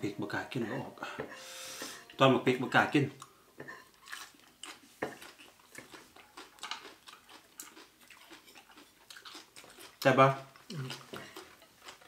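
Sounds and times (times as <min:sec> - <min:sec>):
person chewing food: 0:03.2 - 0:12.0
cutlery clicking on plates: 0:06.5 - 0:06.9.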